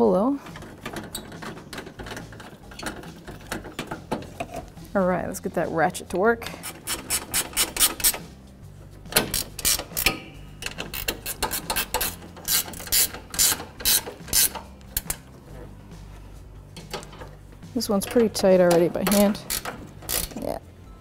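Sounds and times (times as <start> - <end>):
socket ratchet clicking: 6.6 - 8.2, 9.2 - 15.3, 18.0 - 20.5.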